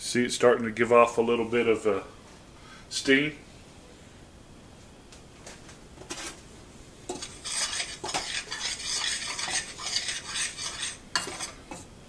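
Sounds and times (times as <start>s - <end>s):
metal spoon scraping saucepan: 7.1s - 11.9s.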